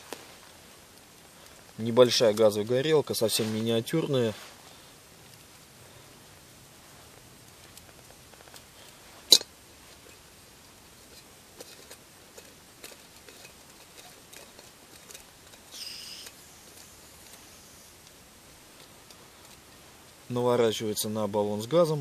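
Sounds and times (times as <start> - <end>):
gas hiss: 15.6 - 20.3.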